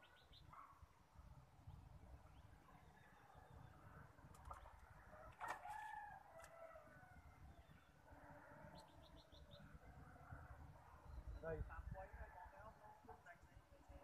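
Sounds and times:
rooster crowing faintly: 0:05.0 - 0:07.5.

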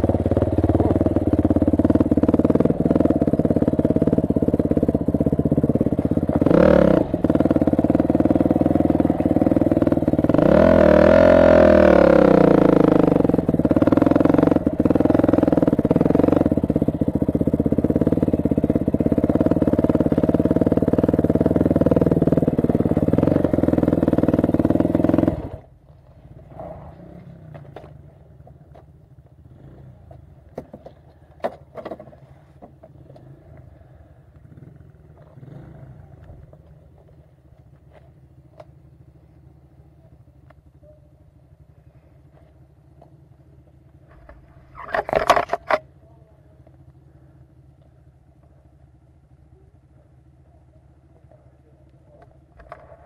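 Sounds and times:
dirt bike engine idling: 0:00.0 - 0:53.0.

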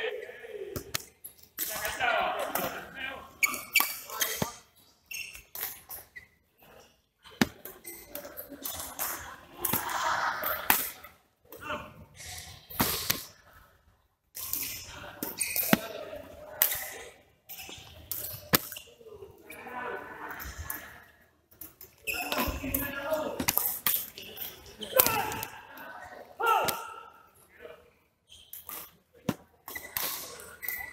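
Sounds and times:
players' voices: 0:00.0 - 0:04.8, 0:06.6 - 0:13.7, 0:14.4 - 0:28.1
rackets striking shuttlecock: 0:18.1 - 0:18.8.

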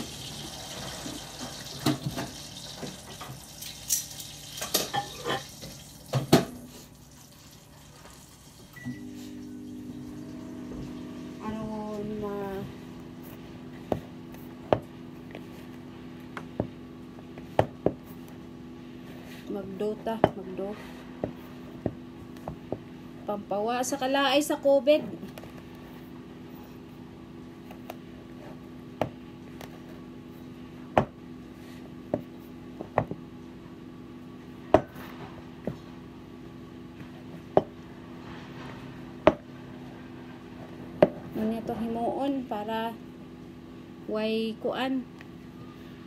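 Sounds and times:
low background hum: 0:00.0 - 0:46.0
dough thumping in bowl: 0:13.2 - 0:18.4, 0:27.6 - 0:29.9, 0:30.8 - 0:31.3, 0:31.9 - 0:33.4, 0:34.6 - 0:36.1, 0:39.2 - 0:39.6
dull knocks of dough in bowl: 0:39.2 - 0:39.5.

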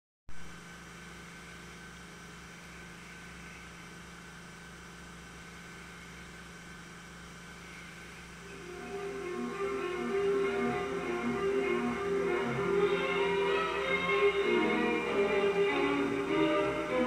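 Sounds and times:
film soundtrack hiss and hum: 0:00.3 - 0:17.0.

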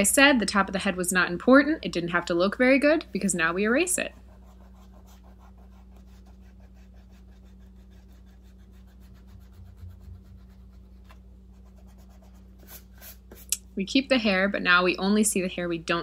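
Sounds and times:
eraser scrubbing on paper: 0:04.0 - 0:13.5.

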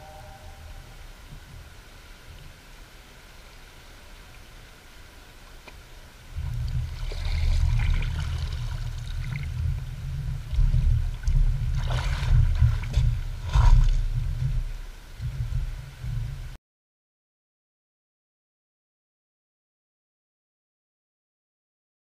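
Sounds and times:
low rumble on microphone: 0:00.0 - 0:16.6
water splashing around legs: 0:06.4 - 0:09.6, 0:10.4 - 0:14.4.

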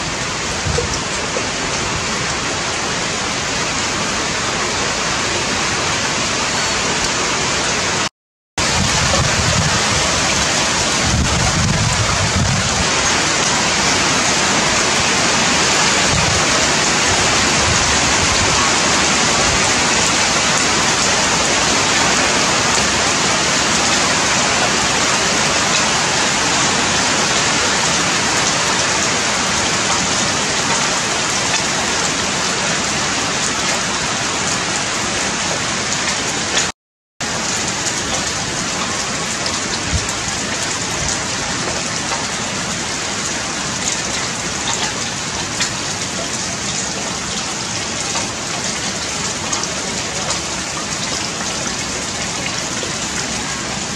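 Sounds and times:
heavy rain hissing: 0:00.0 - 0:36.6.

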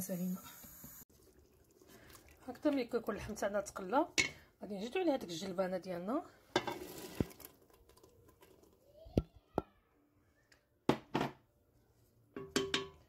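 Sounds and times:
peas pattering into pot: 0:06.6 - 0:08.8
knocks against pot: 0:12.4 - 0:13.0.

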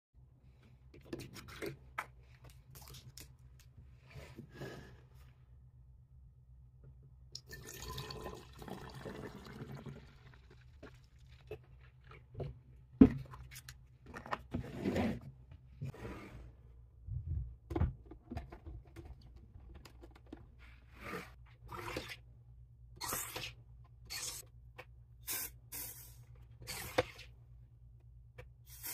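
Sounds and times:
juice pouring into plastic bottle: 0:07.4 - 0:12.2.

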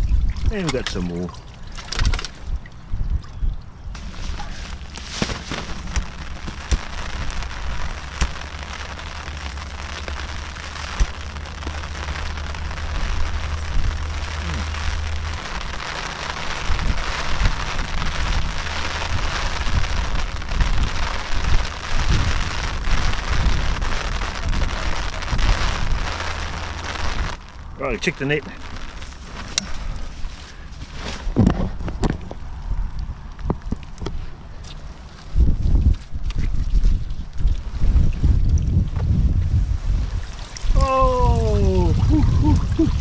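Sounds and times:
wind rumbling on microphone: 0:00.0 - 0:43.0
steady rain falling: 0:04.0 - 0:30.7, 0:40.0 - 0:43.0.

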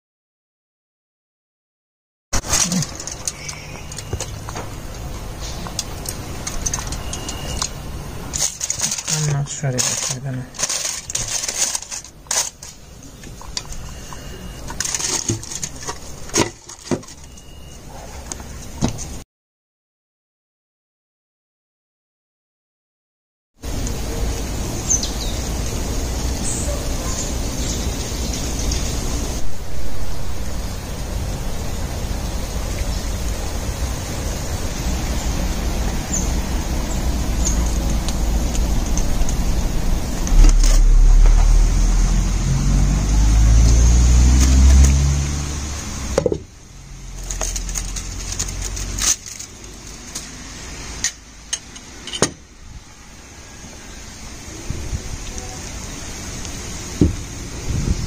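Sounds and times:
faint bird chirps: 0:03.3 - 0:04.3
low motor rumble rising in pitch: 0:34.8 - 0:47.2
wind noise on microphone: 0:54.5 - 0:56.0, 0:56.8 - 0:58.0.

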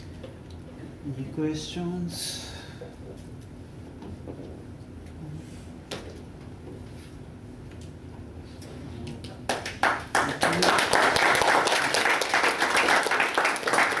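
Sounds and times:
audience applause: 0:09.5 - 0:14.0.

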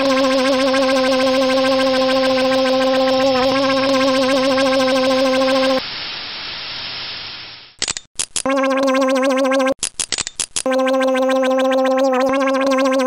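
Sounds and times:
buzzing machine hum with flutter: 0:00.0 - 0:05.8.

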